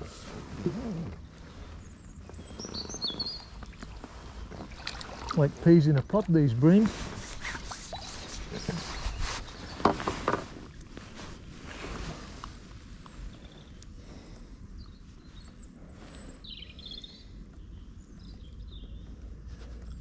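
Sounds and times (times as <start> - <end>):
small birds chirping: 0.0 - 20.0
hands handling fish: 3.4 - 14.0.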